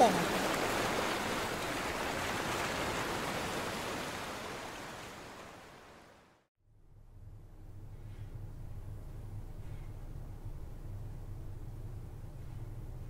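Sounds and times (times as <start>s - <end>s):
sea surf washing onto beach: 0.0s - 6.3s.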